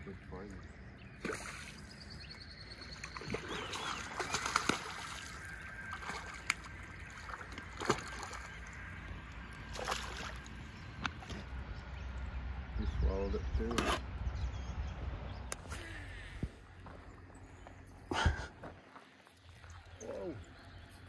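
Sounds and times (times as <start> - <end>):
water sloshing and splashing: 1.1 - 11.6.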